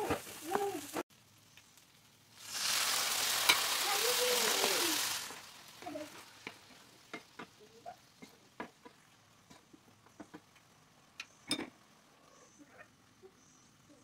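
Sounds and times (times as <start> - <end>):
faint simmering: 0.0 - 14.0
spatula scraping a frying pan: 2.4 - 3.9.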